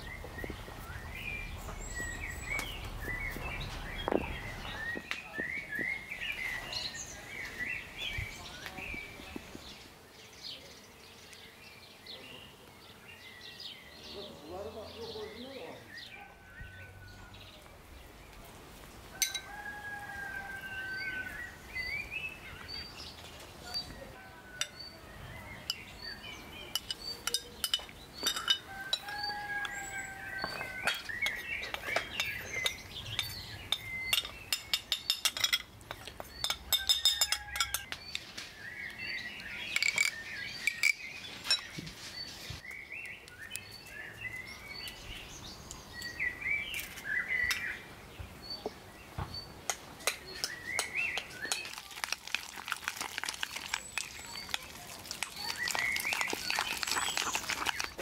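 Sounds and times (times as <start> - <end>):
birds singing and chirping: 0.0 - 58.0
metal spoon clinking on glass bowls: 19.2 - 19.5, 26.7 - 38.0, 39.7 - 41.7, 50.0 - 58.0.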